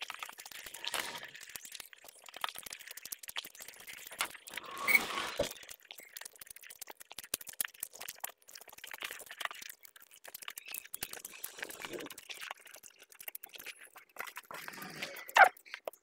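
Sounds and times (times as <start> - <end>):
mouth chewing and smacking: 0.0 - 16.0.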